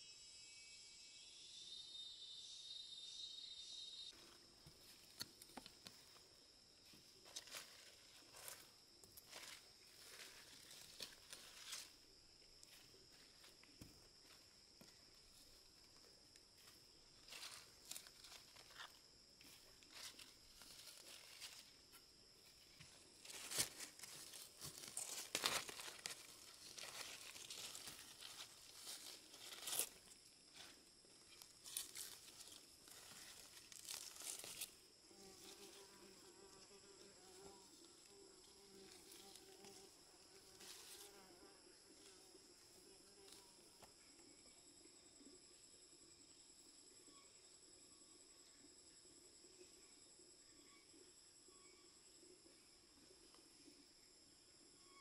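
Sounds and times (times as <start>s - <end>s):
high-pitched insect whine: 0.0s - 55.0s
rustling and crackling: 22.8s - 34.8s
fly buzzing: 34.2s - 43.5s.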